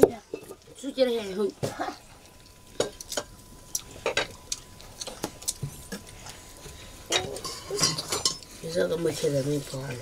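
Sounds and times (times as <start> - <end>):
metal plates clinking: 7.1 - 8.4.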